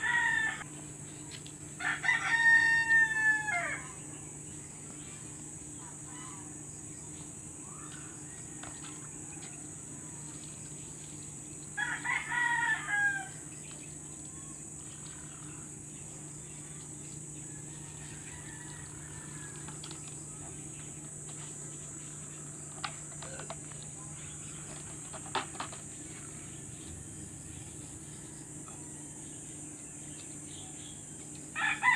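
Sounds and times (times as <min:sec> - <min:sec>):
rooster crowing: 0:00.0 - 0:00.7, 0:01.8 - 0:04.0, 0:11.8 - 0:13.4, 0:17.4 - 0:20.0, 0:28.2 - 0:29.7, 0:31.5 - 0:31.9
high insect buzz: 0:00.0 - 0:31.9.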